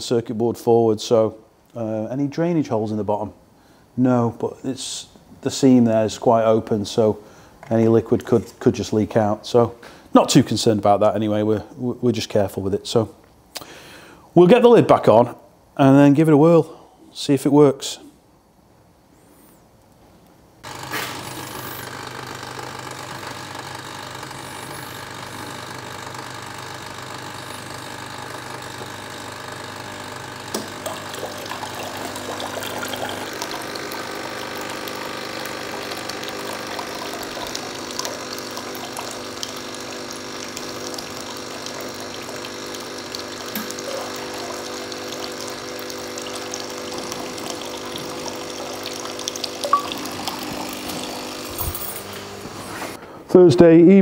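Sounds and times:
machine hum: 20.6s - 53.2s
water pouring into a bucket: 29.8s - 51.9s.

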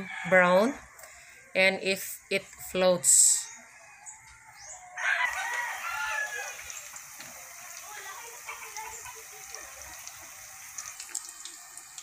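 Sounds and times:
rooster crowing: 0.0s - 1.4s, 3.5s - 7.0s
spring rolls sizzling in oil: 5.3s - 12.0s.

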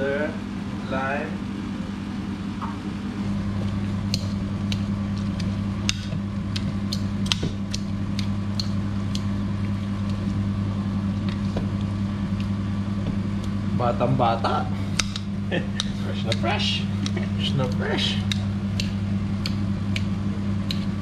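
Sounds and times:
steady low hum: 0.0s - 21.0s
fork mashing avocado: 3.4s - 10.4s.

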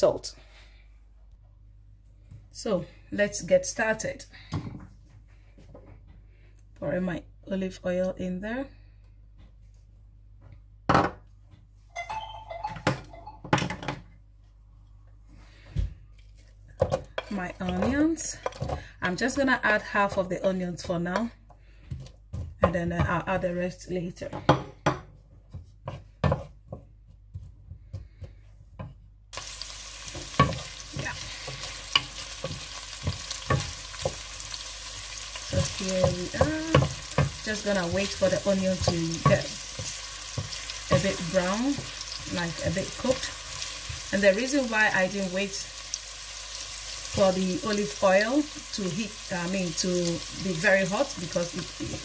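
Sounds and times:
dishes knocking and clinking: 10.9s - 11.2s, 12.0s - 14.1s, 24.4s - 25.2s
brief ringing tone of dish: 12.0s - 13.4s
wooden spoon scraping a pan: 25.4s - 45.2s, 46.6s - 52.0s
onions sizzling in a pan: 29.3s - 52.0s.

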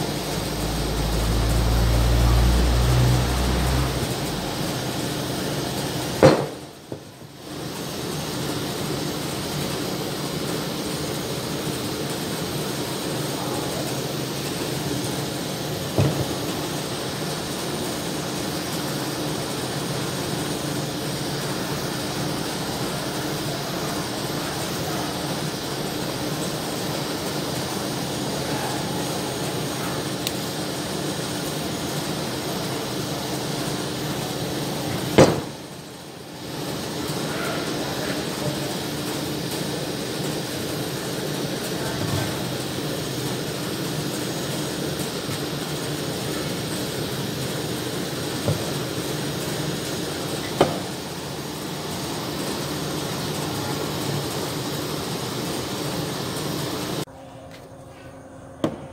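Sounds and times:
torch flame hissing: 0.0s - 57.1s
single knock: 6.2s - 6.6s.

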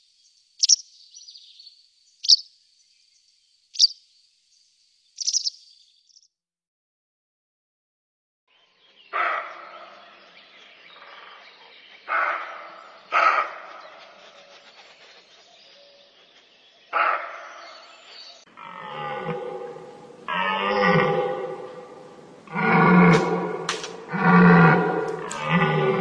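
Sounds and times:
deer calling: 5.2s - 5.6s.

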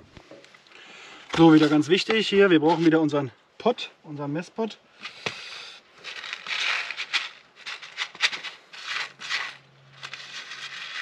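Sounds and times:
grain rattling in plastic tub: 6.0s - 11.0s.

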